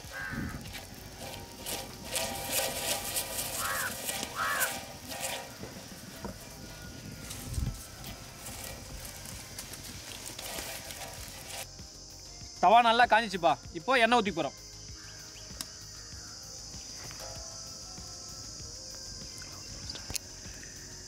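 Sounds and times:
onion scraping iron griddle: 0:00.0 - 0:11.8.

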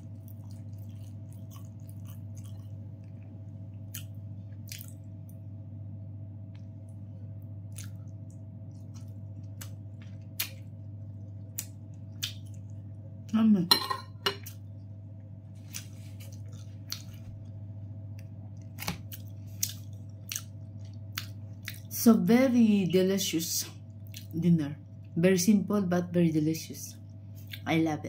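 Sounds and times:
steady low hum: 0:00.0 - 0:28.0
voice: 0:13.3 - 0:13.8, 0:21.9 - 0:27.0, 0:27.6 - 0:28.0.

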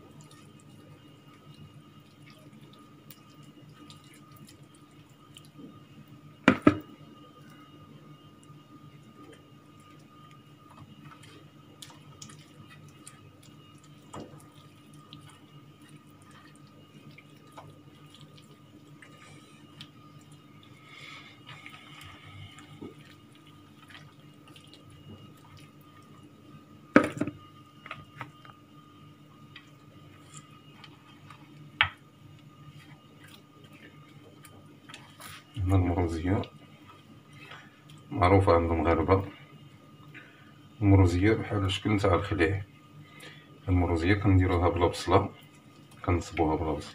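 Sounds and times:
faint steady hum: 0:00.0 - 0:46.9
wet squelching of meat rubbed by hand: 0:09.0 - 0:26.4, 0:32.4 - 0:38.0.

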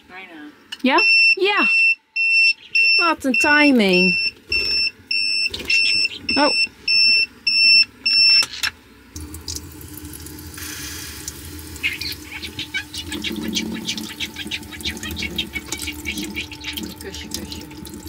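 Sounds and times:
egg cooker beeping: 0:00.8 - 0:08.7, 0:10.6 - 0:18.0
tap water running into sink: 0:09.2 - 0:18.0.

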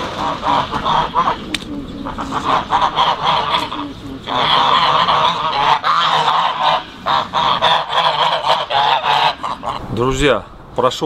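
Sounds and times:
birds honking: 0:00.0 - 0:09.9.

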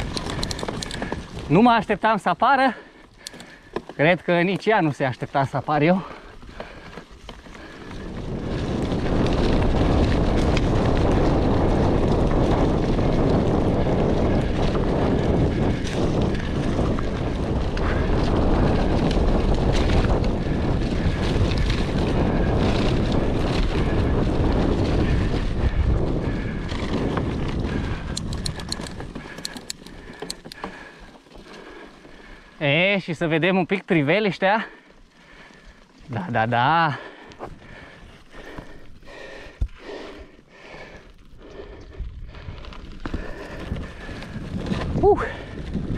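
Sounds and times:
sharp clicks: 0:00.0 - 0:01.0, 0:28.1 - 0:30.7
wind buffeting microphone: 0:00.0 - 0:02.0, 0:04.2 - 0:33.2, 0:34.8 - 0:45.9
bike tyres rumbling on dirt: 0:00.0 - 0:45.9.

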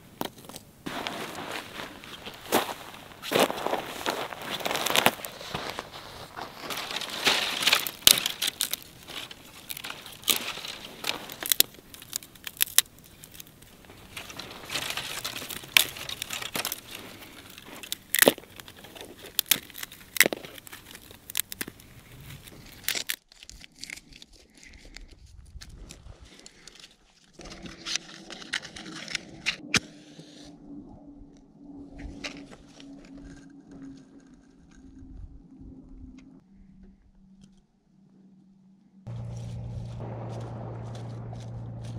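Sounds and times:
dry twigs rustling and crinkling: 0:00.0 - 0:29.7, 0:31.9 - 0:35.5, 0:39.1 - 0:41.9
dry sticks snapping: 0:06.5 - 0:26.8.

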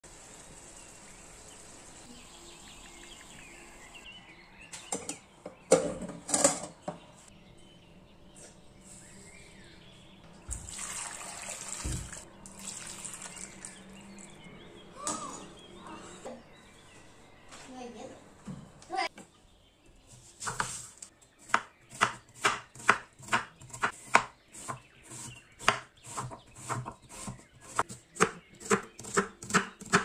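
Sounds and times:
water running and splashing: 0:10.5 - 0:13.9.

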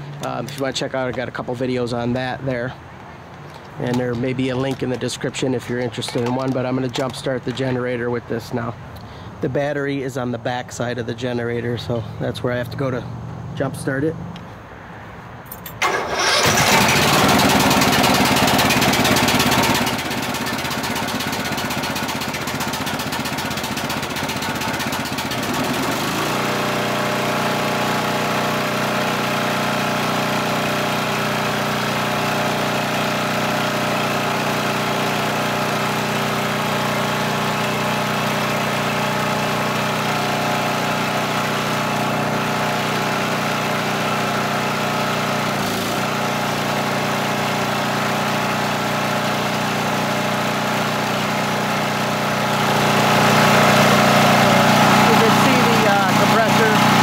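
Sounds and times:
generator engine running: 0:15.8 - 0:57.0.

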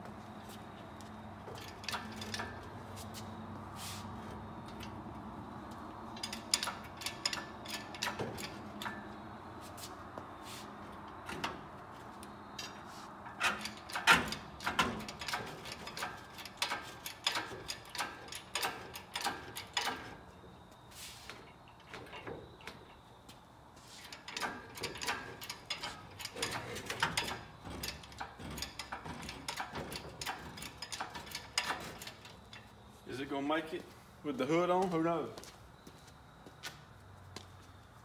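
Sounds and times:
hydraulic hoist clicks and clanks: 0:01.4 - 0:03.4, 0:04.3 - 0:09.3, 0:10.9 - 0:20.5, 0:21.3 - 0:23.1, 0:24.0 - 0:32.8.

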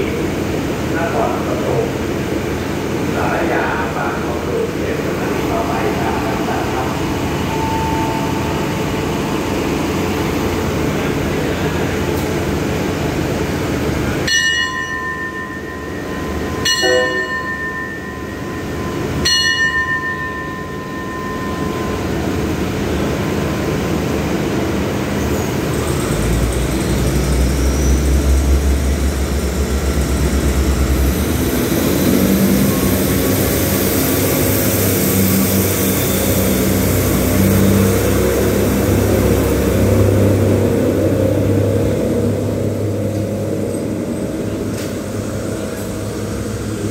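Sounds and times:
diesel train engine rumbling: 0:00.0 - 0:46.9
hand bell ringing: 0:14.3 - 0:22.2.

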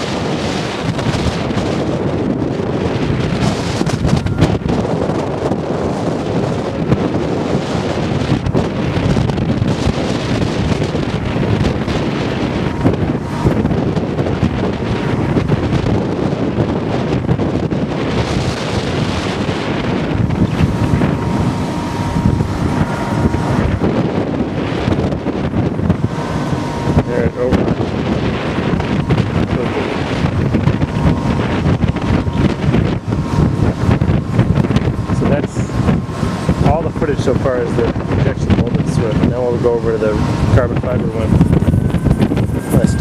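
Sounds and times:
gusty wind buffeting microphone: 0:00.0 - 0:43.0
faint steady high tone: 0:41.6 - 0:43.0.

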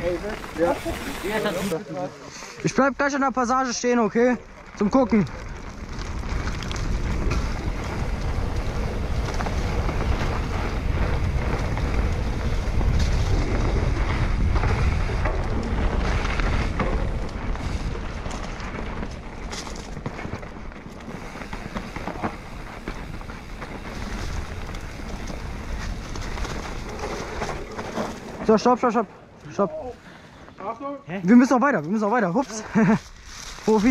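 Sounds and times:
bike knocking and rattling: 0:04.1 - 0:29.7
wind buffeting microphone: 0:05.3 - 0:28.5.

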